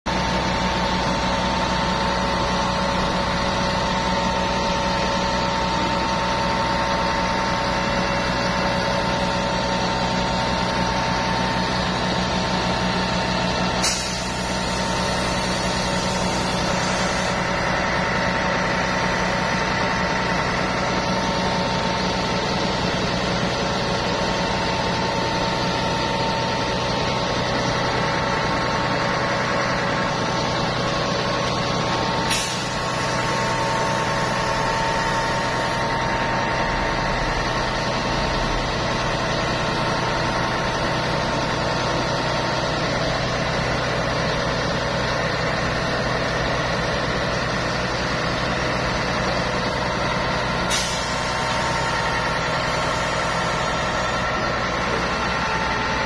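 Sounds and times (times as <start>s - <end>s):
hydraulic whine: 0.1s - 47.7s, 48.5s - 56.0s
engine drone: 0.1s - 56.0s
hiss: 13.8s - 17.5s, 32.3s - 34.6s, 50.7s - 54.2s.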